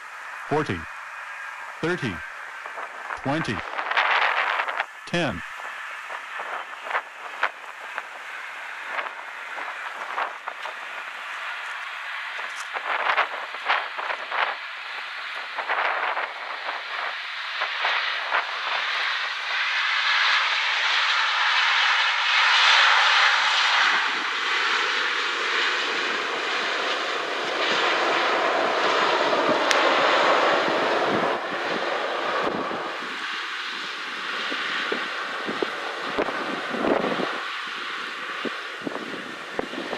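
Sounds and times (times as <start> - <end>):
jet engines rushing: 0.0 - 39.9.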